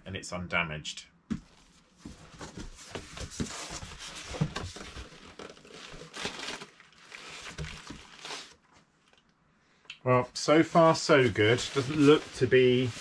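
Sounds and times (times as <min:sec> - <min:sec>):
small knocks and scrapes: 0:01.3 - 0:06.2
packaging rustling and crinkling: 0:01.6 - 0:09.2, 0:10.9 - 0:13.0.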